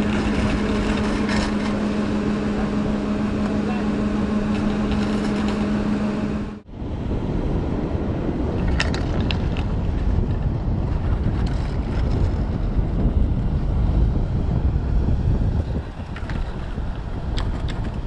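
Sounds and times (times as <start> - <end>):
lift drive machinery hum: 0.0 - 7.1
wind noise on microphone: 0.0 - 18.0.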